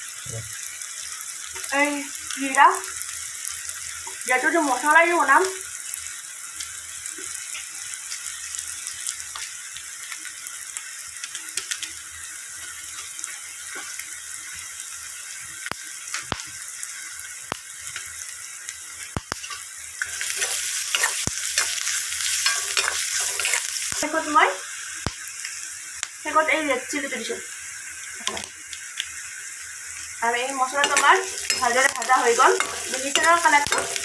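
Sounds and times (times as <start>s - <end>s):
onions sizzling in oil: 0.0s - 34.0s
spatula stirring: 19.4s - 24.0s, 30.7s - 34.0s.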